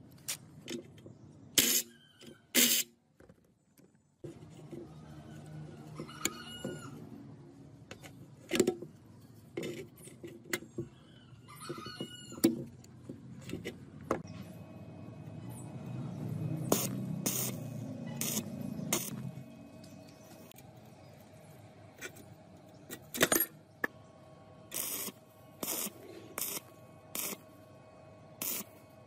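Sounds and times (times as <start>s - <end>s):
metal tools knocking and clinking: 22.9s - 23.6s.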